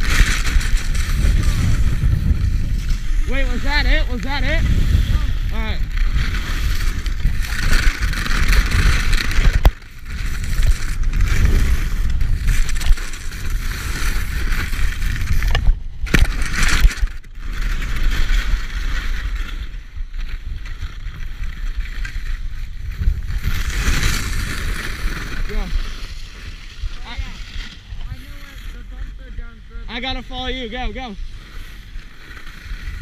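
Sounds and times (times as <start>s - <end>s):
wind buffeting microphone: 0.0s - 16.2s
skis scraping over snow: 0.0s - 33.0s.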